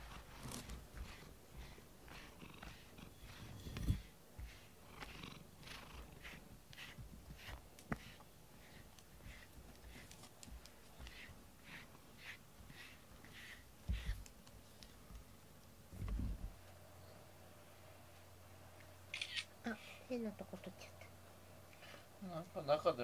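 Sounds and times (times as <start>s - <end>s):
cat purring: 0.0s - 14.3s
low thumps: 15.9s - 16.6s.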